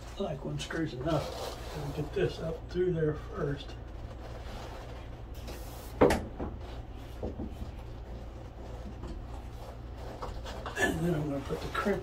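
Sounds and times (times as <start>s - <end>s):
steady low hum: 0.0s - 12.0s
cable tapping and rustling: 3.7s - 12.0s.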